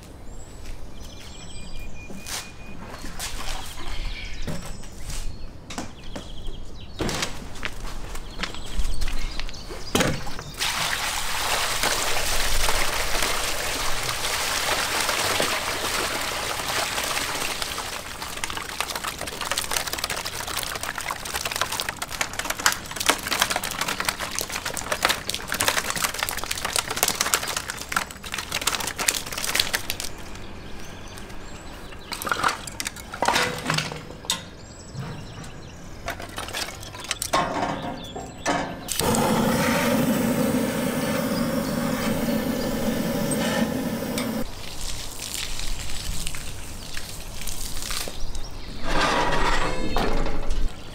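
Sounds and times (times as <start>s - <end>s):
water pouring from a barrel: 10.6s - 30.1s, 38.9s - 48.4s.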